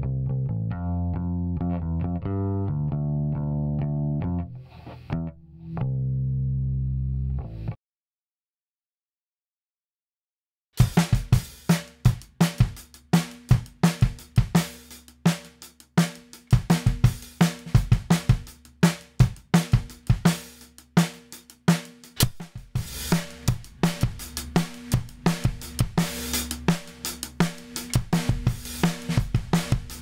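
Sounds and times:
acoustic drum kit beat: 10.8s - 30.0s.

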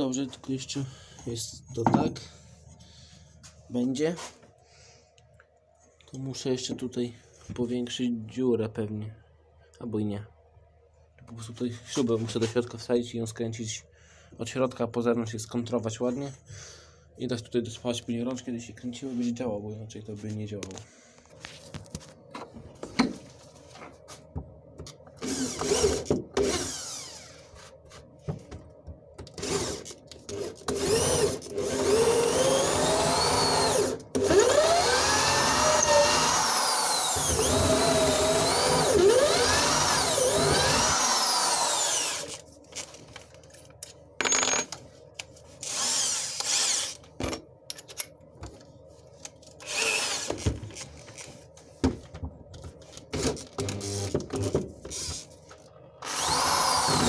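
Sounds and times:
electric drill boring through wood: 25.2s - 27.4s, 30.4s - 42.4s, 45.6s - 47.0s, 49.6s - 50.4s, 56.0s - 57.0s.

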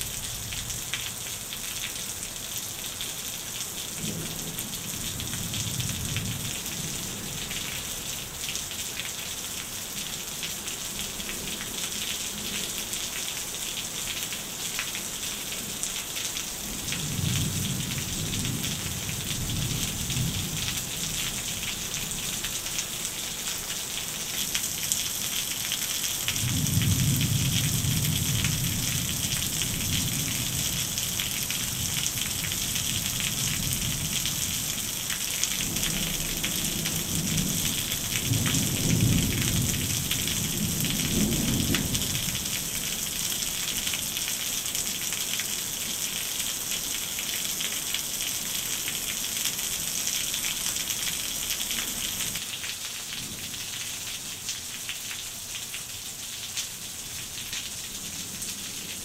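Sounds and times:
heavy rain on gravel: 0.0s - 59.0s.

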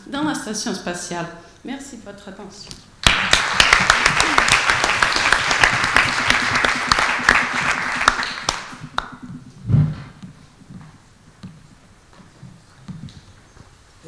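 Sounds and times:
audience applauding: 3.0s - 9.0s.

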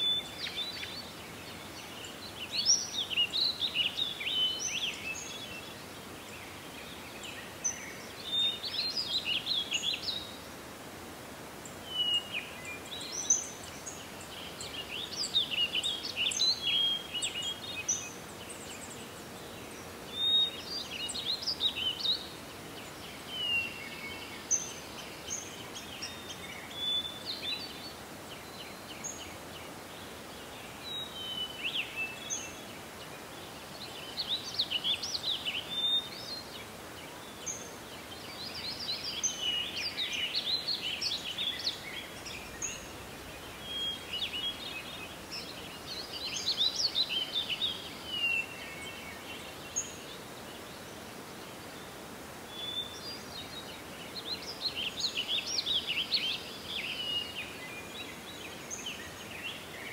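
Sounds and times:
faint outdoor hiss: 0.0s - 59.9s
songbirds chirping and warbling: 0.0s - 59.9s.

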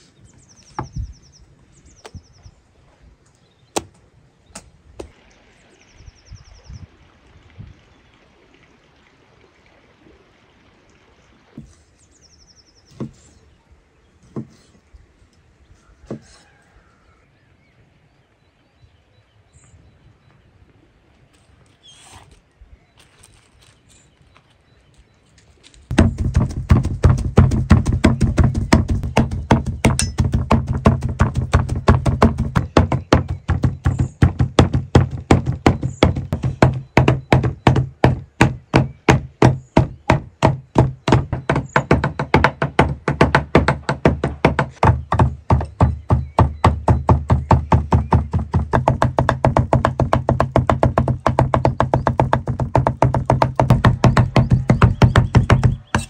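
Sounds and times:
knives chopping on wooden board: 25.9s - 46.8s, 51.7s - 56.0s.

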